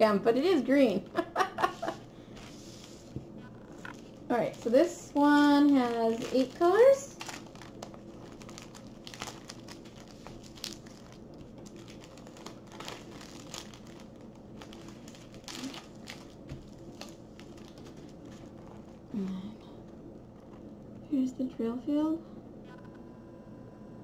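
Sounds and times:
low steady hum: 0.0 - 24.0
plastic packaging crinkling: 1.6 - 19.4.

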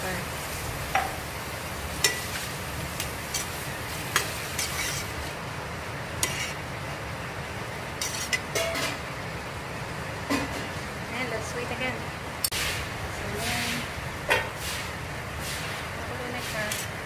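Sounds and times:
food sizzling: 0.0 - 17.0
metal ladle scraping a pot: 3.3 - 5.3, 6.2 - 6.6, 8.0 - 9.0.

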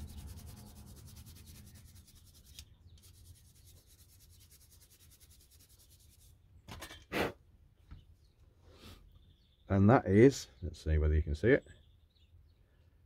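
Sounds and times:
hand rubbing metal: 0.0 - 6.4.

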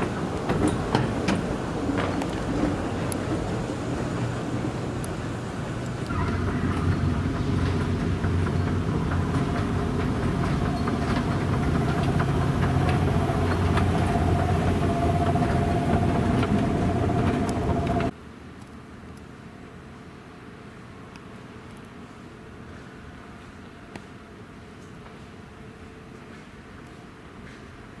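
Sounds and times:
escalator hum: 0.0 - 18.1
thin steady whine: 0.0 - 18.1.

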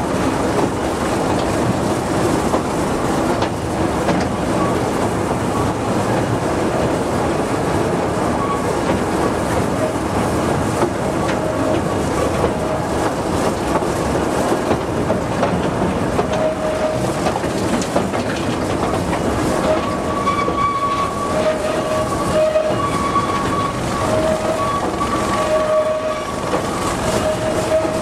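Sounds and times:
train wheels clattering on track: 0.0 - 28.0
faint wheel squeals: 19.7 - 28.0.

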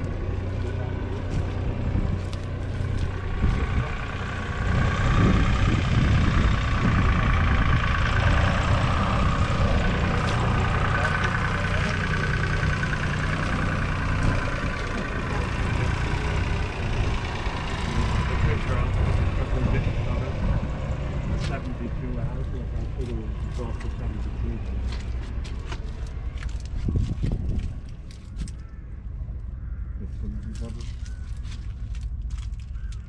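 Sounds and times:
diesel engine idling: 0.0 - 33.0.

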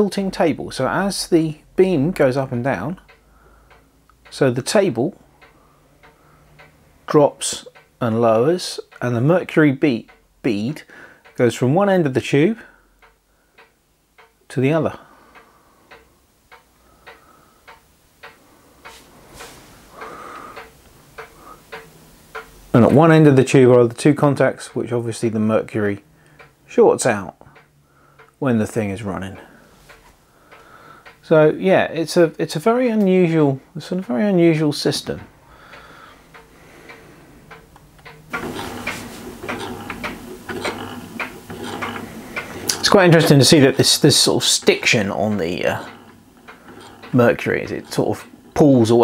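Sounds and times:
low mains hum: 0.0 - 49.0
soft buzzing hiss: 0.0 - 49.0
beam engine ticking: 32.0 - 49.0
clicks and knocks from linkage: 36.4 - 43.4, 45.8 - 47.2.

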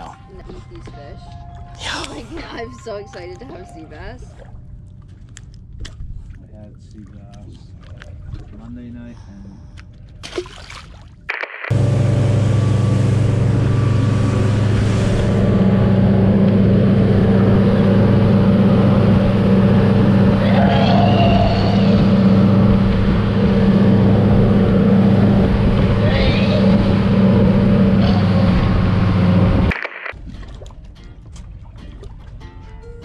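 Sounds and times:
boat engine running: 0.0 - 10.2, 11.7 - 32.8
water rushing past hull: 10.2 - 32.4.

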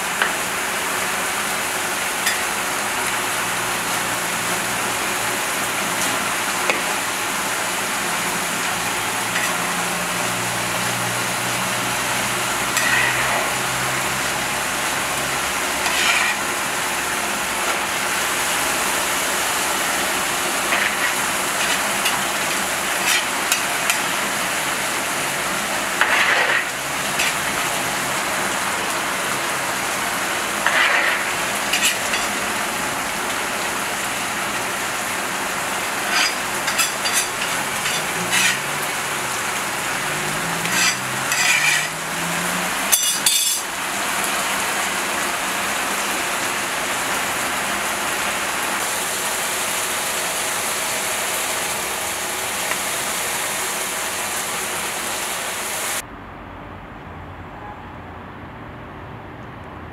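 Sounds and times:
rice sizzling in a cauldron: 0.0 - 56.0
metal skimmer scraping cauldron: 8.0 - 10.2, 12.5 - 14.0, 15.0 - 16.8, 19.9 - 24.6, 25.4 - 27.8, 30.3 - 32.9, 35.7 - 43.7.

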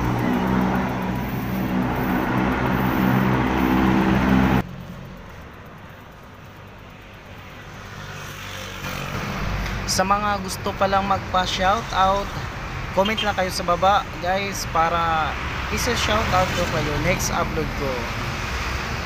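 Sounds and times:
vehicle engine running: 0.0 - 6.9
faint street hum: 0.0 - 19.0
road traffic: 0.0 - 19.0.

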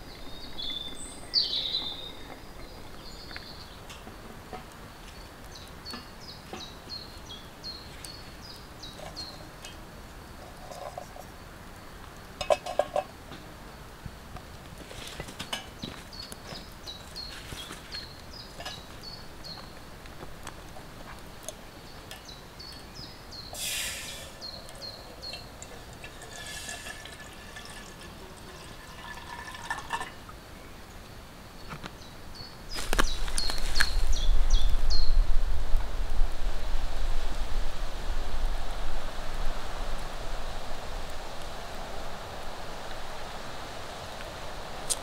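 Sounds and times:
twig fire crackling: 0.0 - 45.0
water pouring into metal kettle: 25.2 - 30.2.

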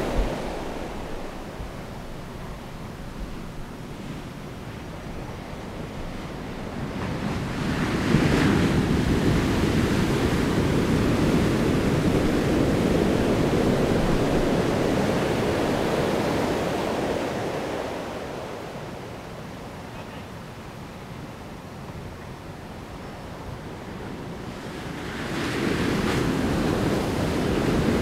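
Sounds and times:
wave crashing: 0.0 - 3.6
surf washing in: 0.0 - 20.8, 22.6 - 28.0.

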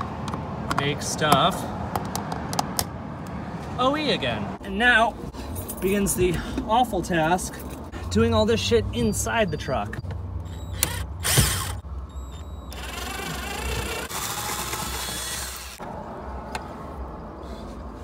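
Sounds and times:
cordless drill running: 10.5 - 11.8, 12.7 - 15.8.

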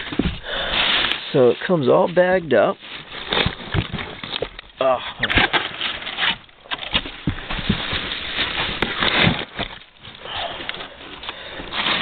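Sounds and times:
knocks and scrapes in a box: 0.0 - 1.2, 2.9 - 4.5, 5.2 - 9.8
plastic bag crinkling: 5.3 - 12.0.

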